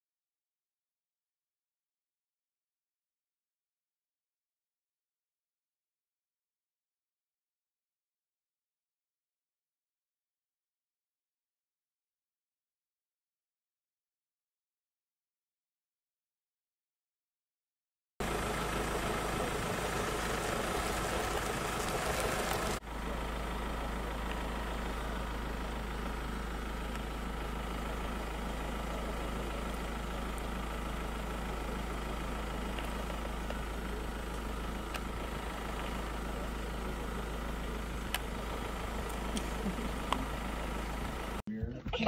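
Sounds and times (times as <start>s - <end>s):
vehicle engine idling: 18.2s - 42.0s.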